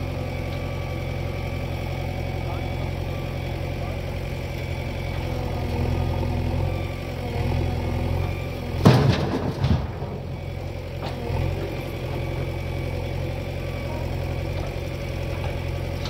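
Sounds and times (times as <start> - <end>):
diesel engine idling: 0.0 - 16.0
loud knocks: 8.8 - 10.2.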